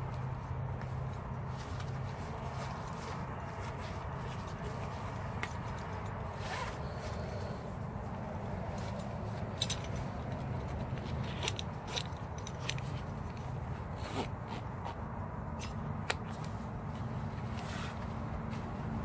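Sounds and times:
cloth belt rustling: 0:00.0 - 0:19.0
buckle clicks: 0:08.8 - 0:14.6.

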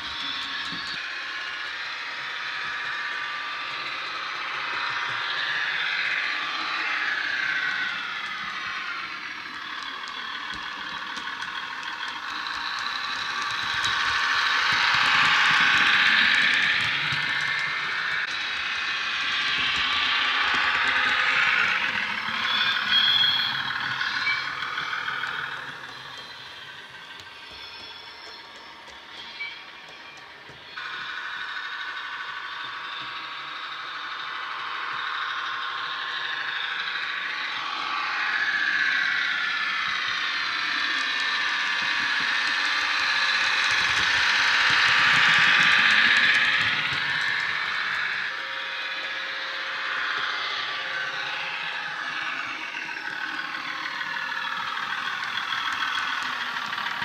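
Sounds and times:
diesel train engine running: 0:00.0 - 0:57.0
wheel and motor noise on track: 0:00.0 - 0:57.0
high whistling tone: 0:11.2 - 0:34.4.

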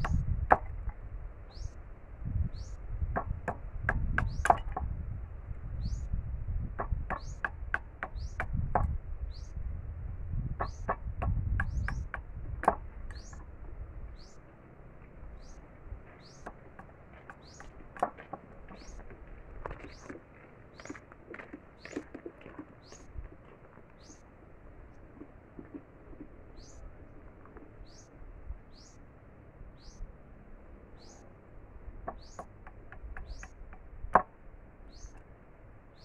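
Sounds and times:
low rumble of handling: 0:08.4 - 0:28.6
bird rising chirp: 0:29.8 - 0:30.1.

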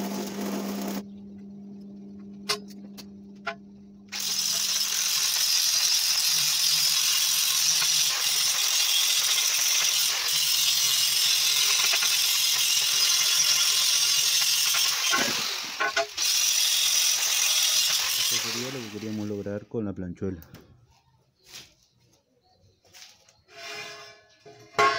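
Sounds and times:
angle grinder grinding metal: 0:00.0 - 0:01.0, 0:03.5 - 0:19.5.

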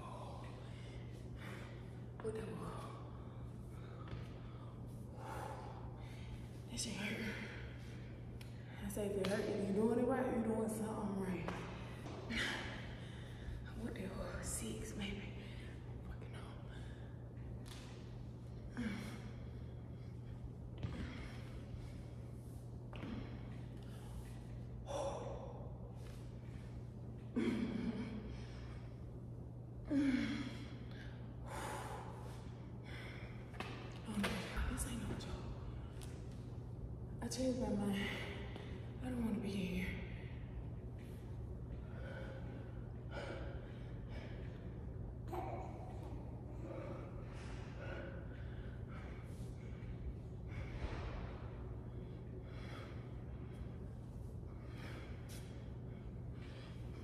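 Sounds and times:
woman's effortful breaths: 0:00.0 - 0:08.8, 0:16.6 - 0:34.0
steady low hum: 0:00.0 - 0:57.0
woman breathing heavily: 0:00.0 - 0:57.0.

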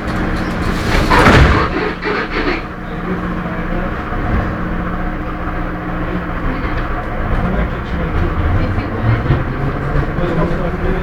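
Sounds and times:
metro train wheels rumbling: 0:00.0 - 0:11.0.

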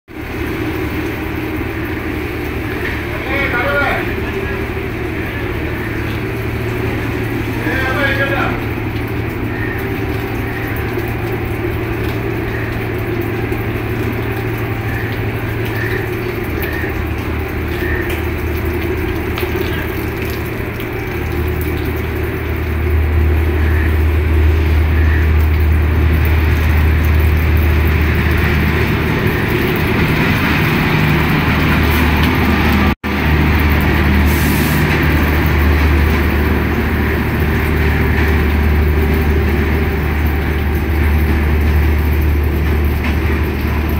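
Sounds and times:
train machinery drone and hiss: 0:00.1 - 0:43.9.

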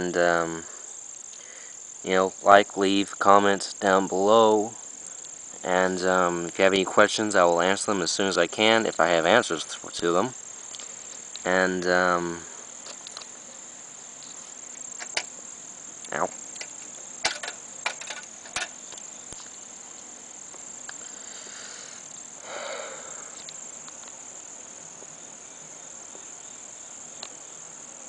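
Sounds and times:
high-pitched insect chirring: 0:00.0 - 0:28.0
rustling: 0:12.4 - 0:15.5
sharp clicks and knocks: 0:15.0 - 0:15.3, 0:16.3 - 0:19.5.

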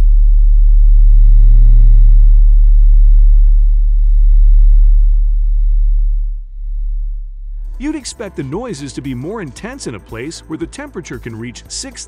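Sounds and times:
deep steady drone: 0:00.0 - 0:11.6
faint high steady tones: 0:01.0 - 0:11.0.

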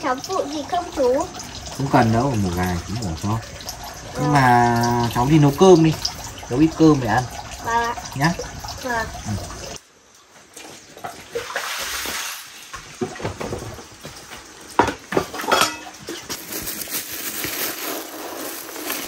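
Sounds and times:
pot and bowl clinking: 0:14.8 - 0:16.7
rice grains rustling: 0:16.1 - 0:19.0.

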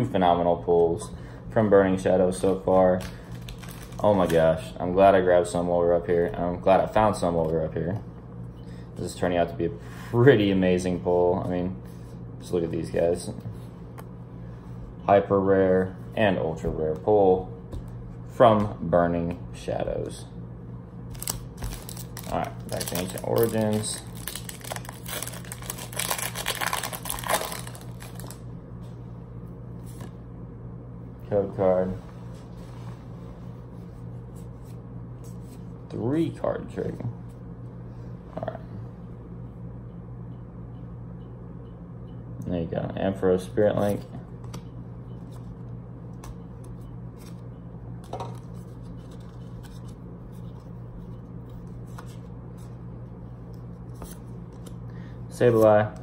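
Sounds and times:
steady low hum: 0:00.0 - 0:56.0
cards clicking and rustling: 0:02.5 - 0:04.4, 0:21.1 - 0:28.4, 0:48.0 - 0:50.6
foil wrapper tearing and crinkling: 0:03.0 - 0:04.4, 0:21.1 - 0:28.4.

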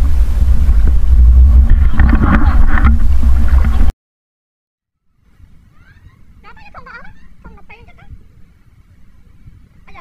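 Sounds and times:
low rumble: 0:00.0 - 0:03.9.

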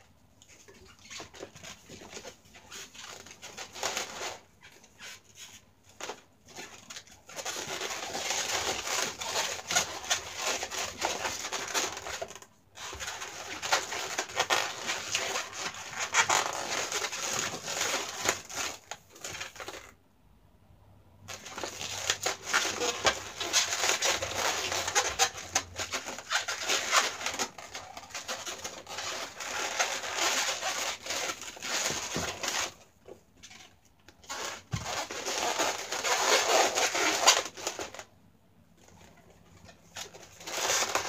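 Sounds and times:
rubber balloons squeaking: 0:00.7 - 0:05.3, 0:07.4 - 0:19.9, 0:21.3 - 0:32.8.

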